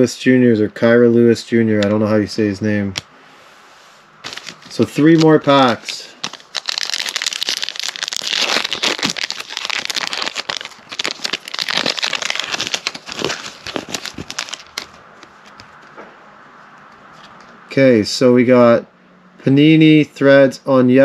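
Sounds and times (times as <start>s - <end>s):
wrapper tearing and crinkling: 4.2s - 15.0s.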